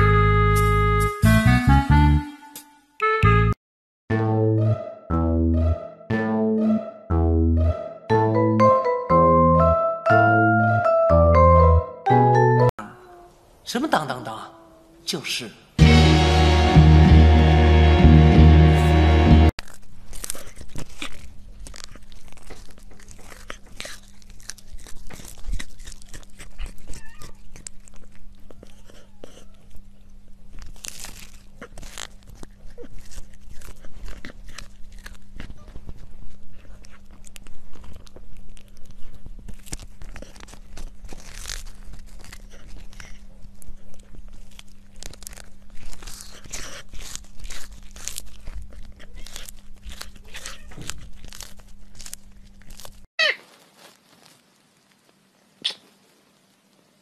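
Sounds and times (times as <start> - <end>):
cat crunching a dry treat: 19.6 - 55.5.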